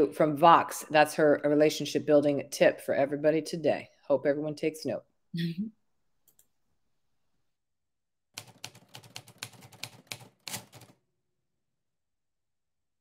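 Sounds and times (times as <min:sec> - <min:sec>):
typewriter keystroke clacks: 0:08.4 - 0:11.0.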